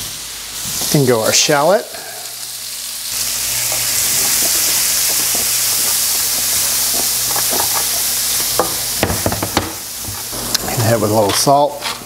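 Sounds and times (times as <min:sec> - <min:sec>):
vegetables sizzling in butter: 0:00.0 - 0:12.0
spatula scraping pan: 0:03.6 - 0:08.6
spatula knocking on pan: 0:03.7 - 0:10.2.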